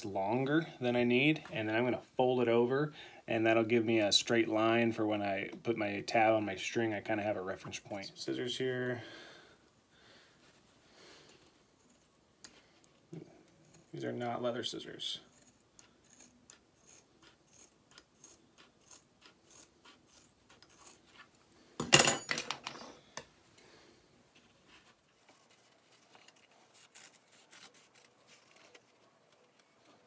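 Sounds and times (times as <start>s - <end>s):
scissors snipping leather: 15.3s - 21.3s.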